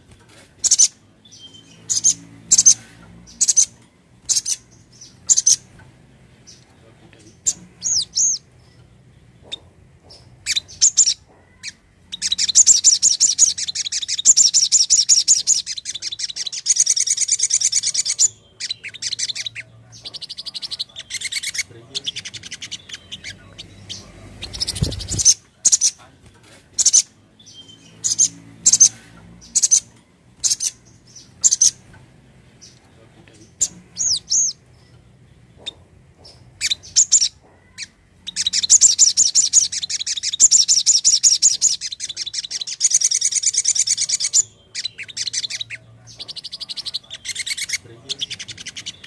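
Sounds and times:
sunbird singing: 0:00.0 - 0:26.2, 0:26.8 - 0:49.0.

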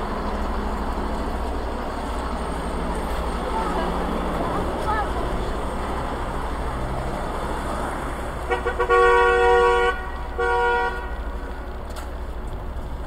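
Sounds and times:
car horn honking: 0:08.5 - 0:11.3.

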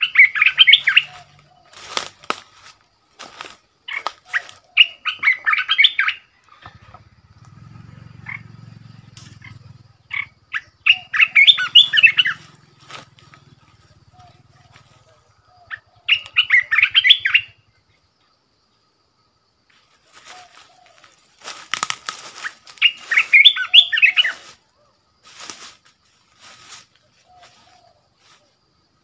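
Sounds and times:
wings rustling flutters: 0:00.9 - 0:04.8, 0:12.0 - 0:15.0, 0:19.9 - 0:23.4, 0:25.2 - 0:28.4
bird singing quick notes: 0:08.3 - 0:17.6.

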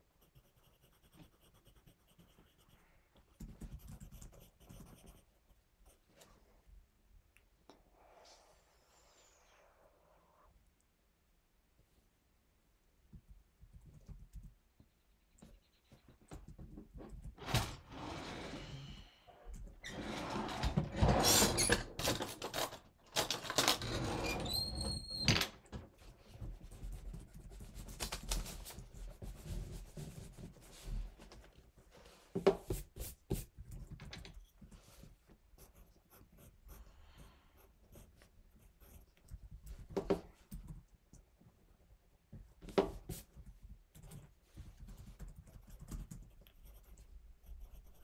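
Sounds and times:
rustling and knocking at a desk: 0:16.1 - 0:17.7, 0:25.7 - 0:35.2, 0:39.4 - 0:40.8, 0:42.3 - 0:43.7, 0:44.4 - 0:45.3
paper and pencil handling thumps: 0:32.1 - 0:35.1.

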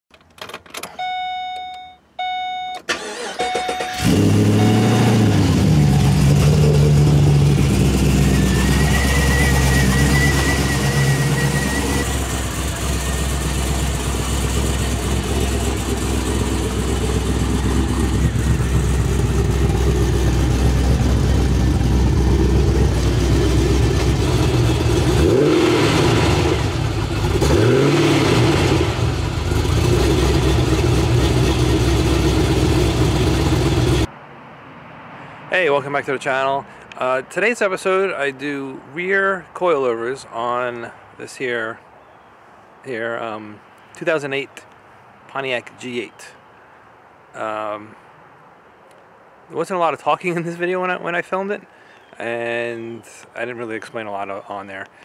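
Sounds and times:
car engine starting and idling: 0:00.1 - 0:34.1
short electronic chimes: 0:00.9 - 0:05.2
engine revving: 0:02.9 - 0:34.1.

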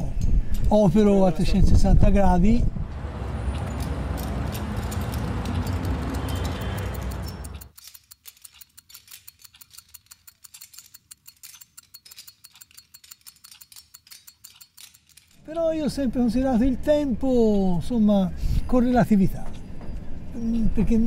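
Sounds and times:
street noise: 0:00.0 - 0:07.8, 0:15.0 - 0:21.0
wristwatches ticking: 0:03.7 - 0:15.4.

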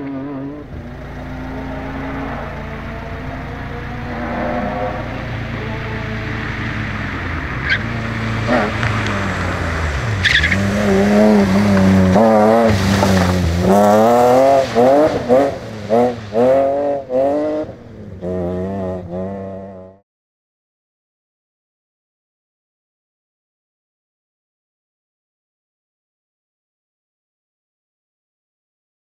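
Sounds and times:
rally car engine revving: 0:00.0 - 0:20.0.

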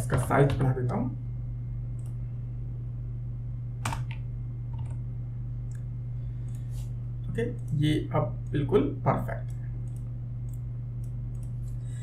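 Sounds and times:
steady low hum: 0:00.0 - 0:12.0
computer keyboard keystrokes: 0:03.8 - 0:05.0, 0:09.8 - 0:11.6.

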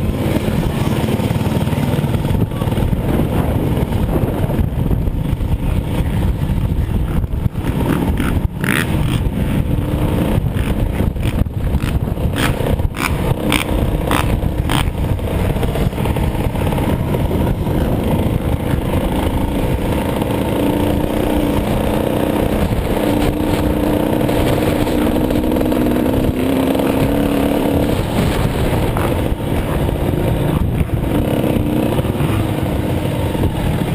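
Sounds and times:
two-stroke motorbike engine: 0:00.0 - 0:33.9
wind rumble on microphone: 0:00.0 - 0:33.9
sharp ticks: 0:10.6 - 0:15.0.

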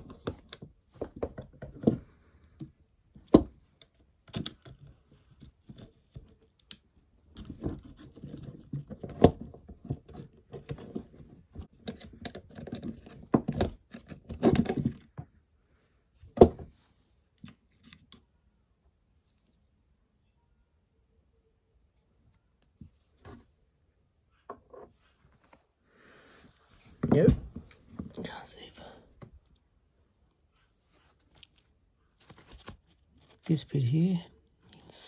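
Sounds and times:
scratching and rustling on plastic: 0:30.4 - 0:33.6.

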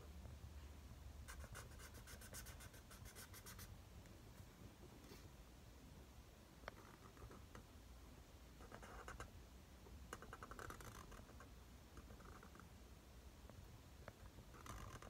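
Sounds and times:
marker pen scratching on paper: 0:01.3 - 0:03.7, 0:08.6 - 0:09.3, 0:10.1 - 0:12.6, 0:14.5 - 0:15.0.

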